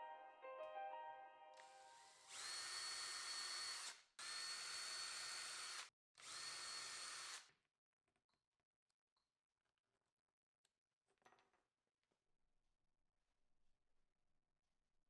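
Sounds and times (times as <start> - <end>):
cordless drill whining: 1.6 - 7.5.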